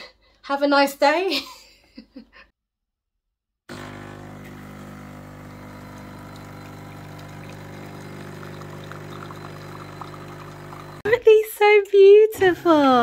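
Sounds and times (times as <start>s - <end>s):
coffee machine pump humming: 3.7s - 11.1s
coffee pouring into mug: 3.7s - 11.1s.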